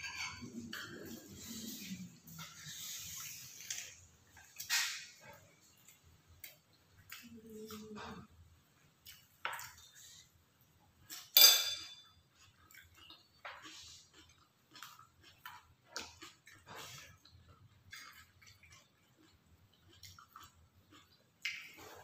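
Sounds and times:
spoons clinking on ceramic plates: 0.0 - 1.0, 11.2 - 12.1.

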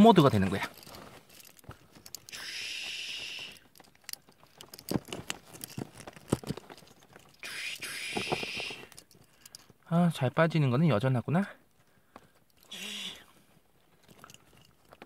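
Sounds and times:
rustling: 0.2 - 9.8.

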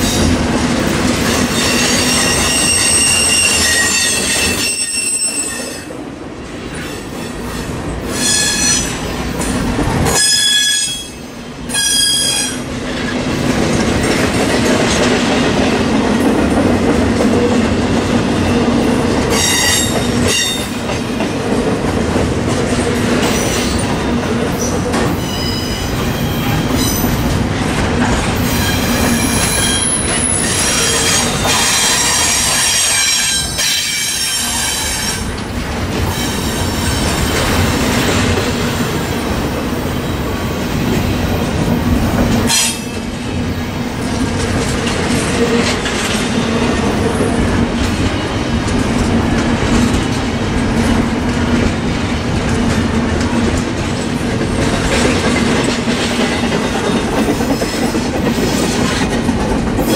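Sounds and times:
train wheels rumbling on rail: 0.0 - 59.9
high-pitched wheel squeal: 1.6 - 5.9.

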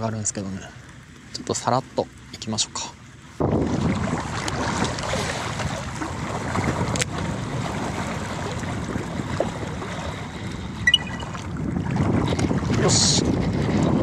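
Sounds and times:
water lapping at shore: 0.0 - 14.0
wind noise on microphone: 3.4 - 14.0
high chirp: 10.9 - 11.4.

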